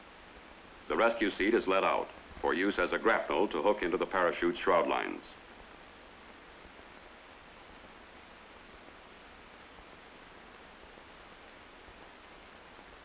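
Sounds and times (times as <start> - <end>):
film soundtrack hiss: 0.0 - 13.0.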